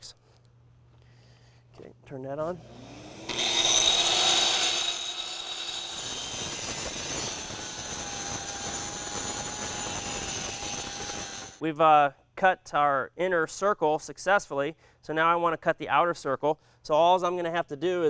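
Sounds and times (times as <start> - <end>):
circular saw cutting concrete: 2.6 - 11.6
dust vacuum running: 2.6 - 11.6.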